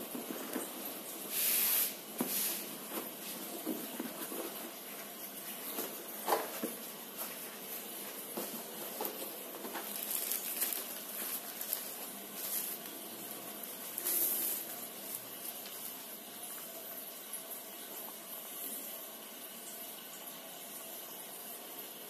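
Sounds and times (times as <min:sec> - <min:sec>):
plastic sleeve rustling: 0:02.2 - 0:16.1.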